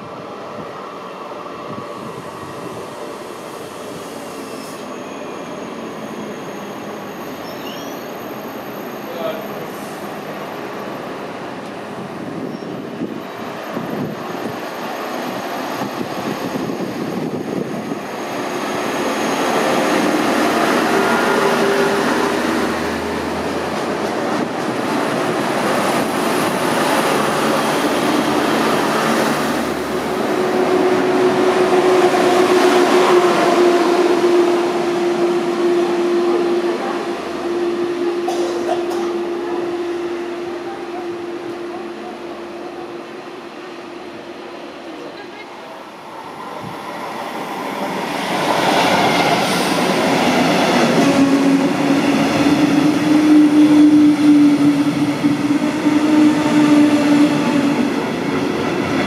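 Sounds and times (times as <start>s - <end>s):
electric train whine: 0.0s - 59.0s
train wheels rumbling on rails: 1.6s - 59.0s.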